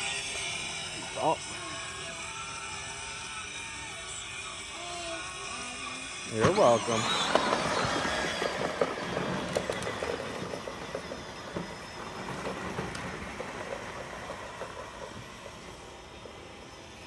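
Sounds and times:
toy car rolling over grass: 5.1s - 17.0s.

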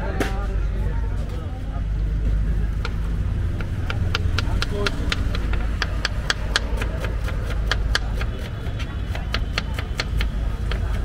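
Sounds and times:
low background rumble: 0.0s - 11.0s
knife chopping on cutting board: 2.8s - 11.0s.

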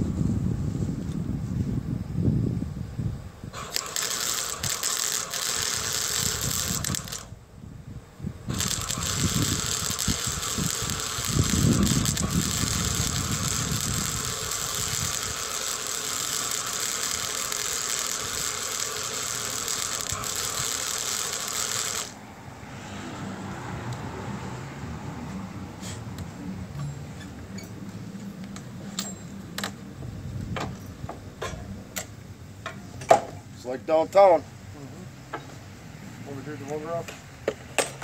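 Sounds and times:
arc welding crackling sizzle: 3.5s - 7.4s, 8.5s - 22.2s.

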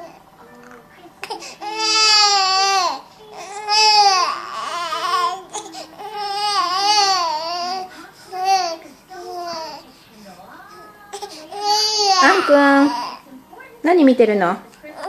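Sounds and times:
infant crying: 1.2s - 10.0s, 11.1s - 13.3s.

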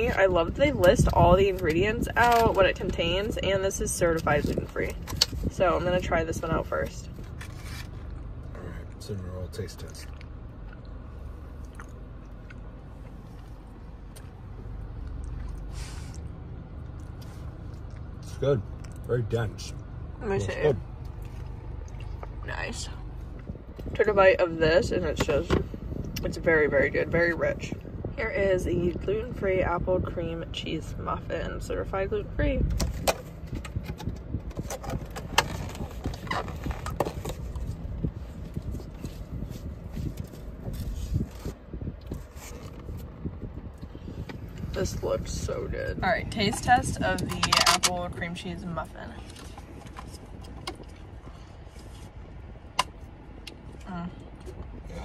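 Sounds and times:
car cabin low hum: 0.0s - 55.0s
low steady rumble: 0.0s - 55.0s
man chewing: 10.0s - 14.3s
plastic squeaks: 34.6s - 37.4s.

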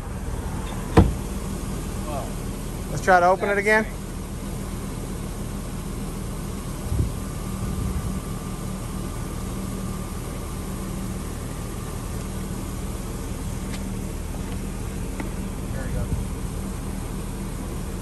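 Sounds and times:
car engine idling: 0.0s - 18.0s
convertible top motor whining: 0.0s - 18.0s
thump: 0.9s - 1.2s.

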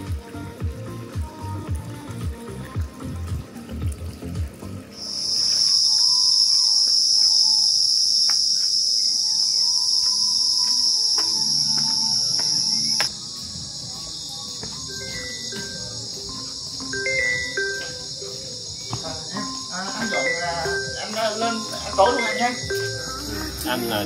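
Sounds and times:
insects trilling: 4.9s - 24.0s.

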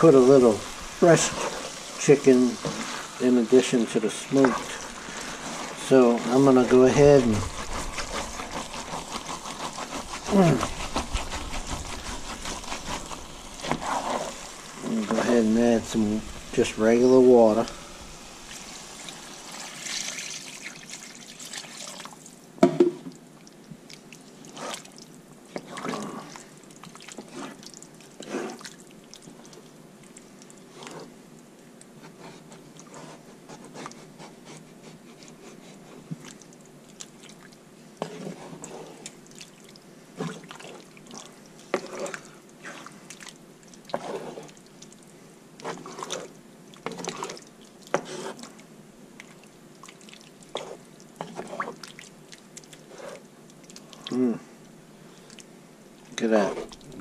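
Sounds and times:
water pouring: 0.0s - 9.5s, 10.1s - 22.4s
spoon stirring liquid in pot: 0.1s - 19.9s, 40.2s - 44.9s, 45.6s - 48.6s, 49.2s - 53.9s, 56.1s - 57.0s.

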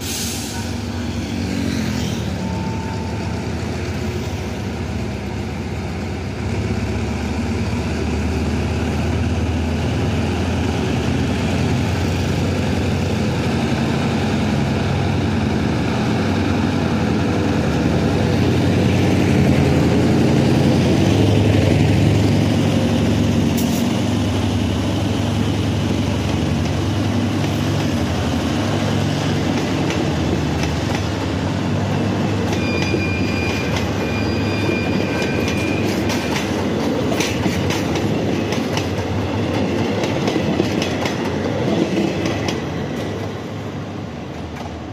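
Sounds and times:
train wheels rumbling on rails: 0.0s - 44.9s
high wheel squeal: 0.2s - 3.6s, 32.4s - 36.6s
locomotive engine passing: 0.7s - 32.6s.

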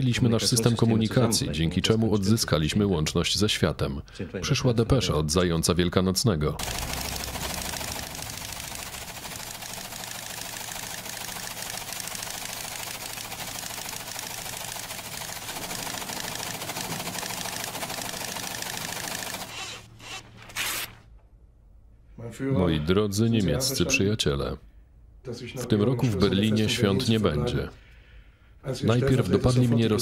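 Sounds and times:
teleprinter type clatter: 6.6s - 19.9s
motor hum: 6.6s - 21.0s.

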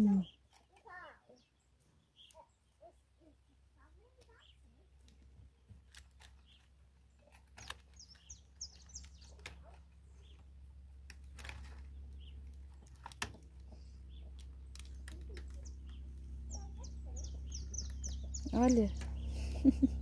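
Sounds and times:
small birds chirping: 0.0s - 20.0s
clicks of wire and wood handled: 5.0s - 10.4s, 11.0s - 16.0s.

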